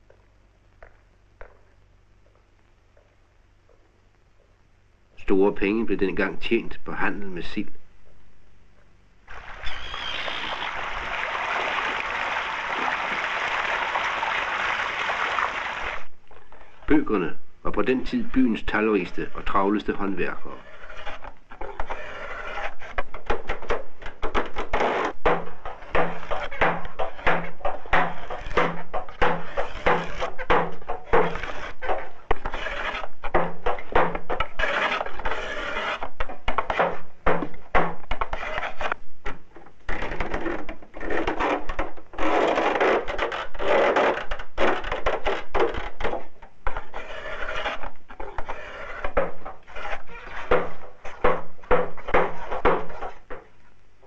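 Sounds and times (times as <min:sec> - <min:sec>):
mallet knocking on wooden barrels: 0:50.4 - 0:53.5.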